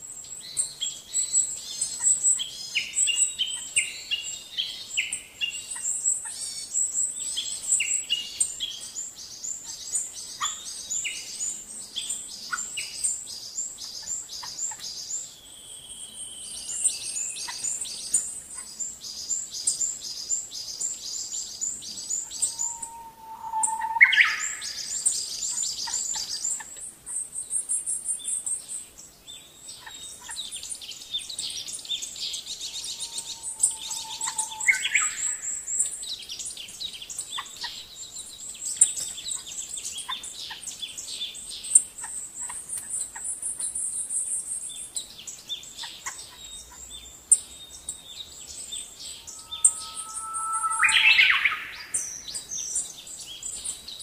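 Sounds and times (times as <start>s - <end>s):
birds chirping and trilling: 0.2s - 54.0s
bird whistle sliding upward: 22.4s - 24.9s, 32.7s - 35.6s, 49.3s - 52.1s.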